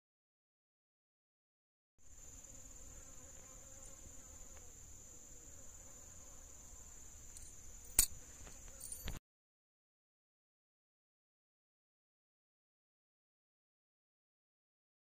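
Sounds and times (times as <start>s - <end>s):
insects trilling: 2.0s - 9.2s.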